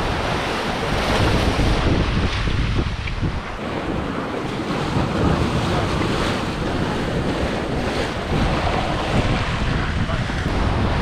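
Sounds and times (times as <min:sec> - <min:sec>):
waves and rushing sea water: 0:00.0 - 0:11.0
wind buffeting microphone: 0:00.0 - 0:11.0.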